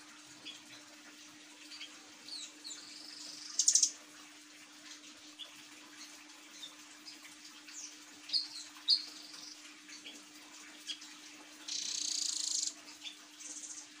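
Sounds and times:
bird chirping: 0:01.7 - 0:03.9, 0:07.7 - 0:10.2.

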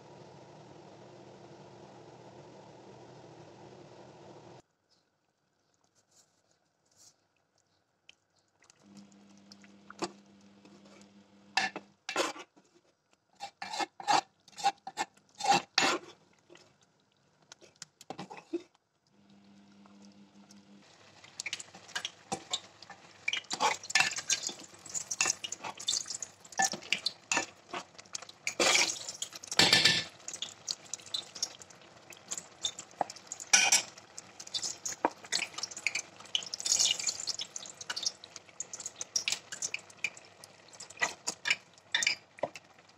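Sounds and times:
ladle scraping and clinking pot: 0:11.6 - 0:12.5, 0:13.4 - 0:16.1, 0:23.3 - 0:27.9, 0:28.5 - 0:30.4, 0:32.4 - 0:36.0, 0:40.9 - 0:42.2.

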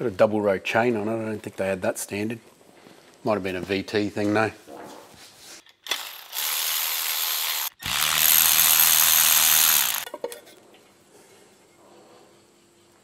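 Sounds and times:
power ratchet spinning bolts: 0:05.8 - 0:10.1.

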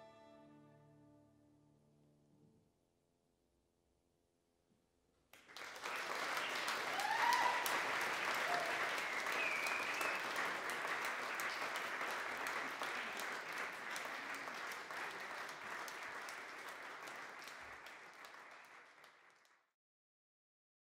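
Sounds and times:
audience clapping: 0:05.4 - 0:19.8
short high whistle: 0:08.6 - 0:10.4.

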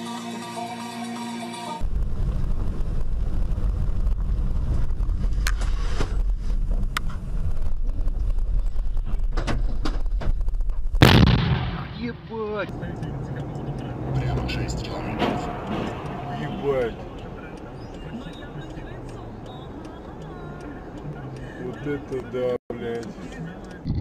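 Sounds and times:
vehicle rumbling on road: 0:01.8 - 0:11.1, 0:12.0 - 0:24.0
sudden loud burst of noise: 0:11.0 - 0:12.1.

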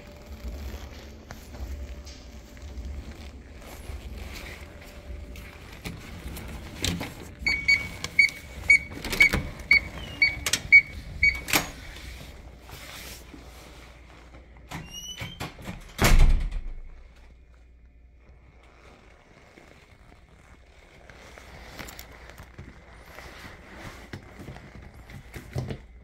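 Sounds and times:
keycard lock beeping: 0:07.4 - 0:11.8
door squeak: 0:07.4 - 0:12.0, 0:14.7 - 0:16.6
heavy door shutting thud: 0:15.3 - 0:16.9.

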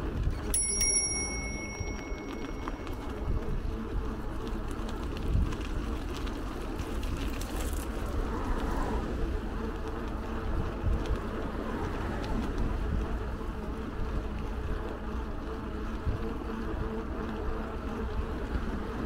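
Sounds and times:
bicycle road noise: 0:00.0 - 0:19.0
wind rumbling on microphone: 0:00.0 - 0:19.0
bell-like ding: 0:00.6 - 0:03.1.

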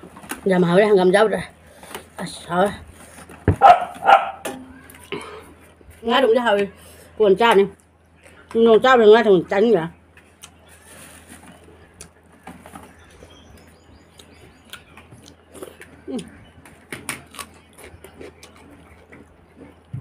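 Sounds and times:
wet chewing sounds: 0:10.2 - 0:20.0.

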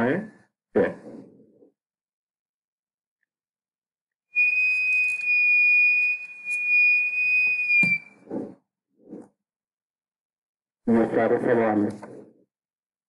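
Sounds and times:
high-pitched whistle: 0:04.3 - 0:08.3.

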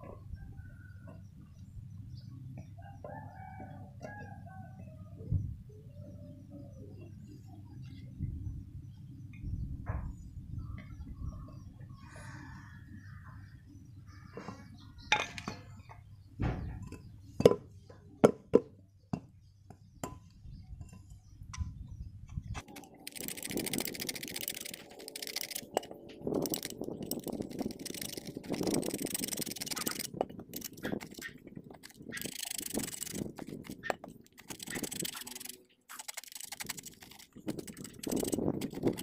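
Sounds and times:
metal parts clinking: 0:22.6 - 0:39.0.

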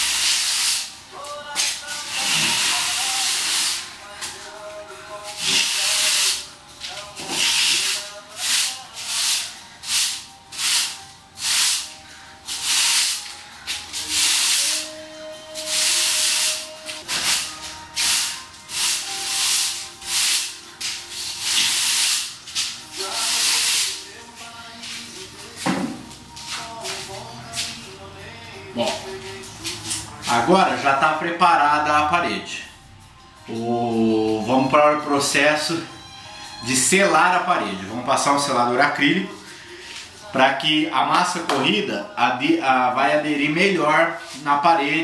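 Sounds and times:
broom brushing rough wall: 0:02.0 - 0:04.0, 0:05.2 - 0:11.9, 0:12.5 - 0:14.9, 0:15.6 - 0:24.2.

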